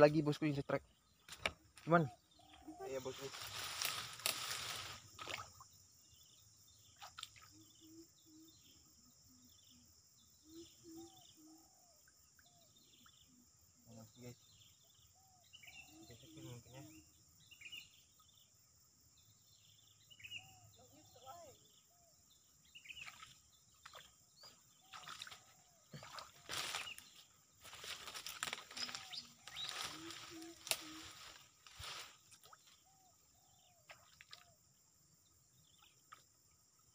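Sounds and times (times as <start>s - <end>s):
high insect drone: 0.0s - 36.9s
rustling in wet grass: 1.3s - 5.6s, 24.9s - 32.9s
faint higher chirps: 19.2s - 34.6s.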